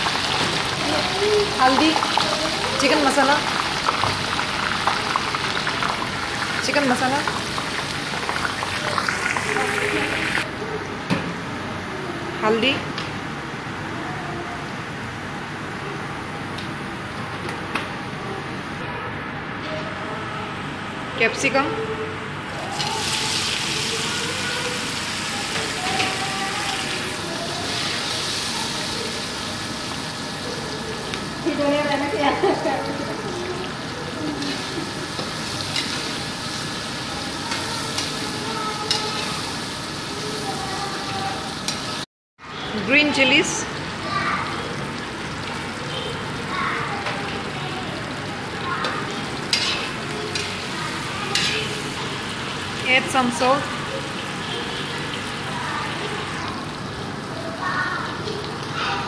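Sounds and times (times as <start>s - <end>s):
food sizzling in a pan: 0.0s - 10.5s, 22.4s - 42.1s, 42.7s - 59.0s.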